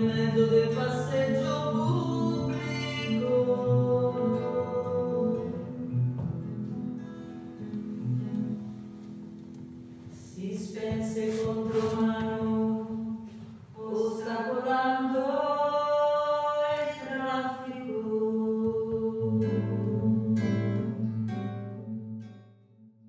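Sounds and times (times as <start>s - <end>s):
person singing: 0.0s - 5.8s, 10.3s - 21.4s
acoustic guitar: 0.0s - 23.0s.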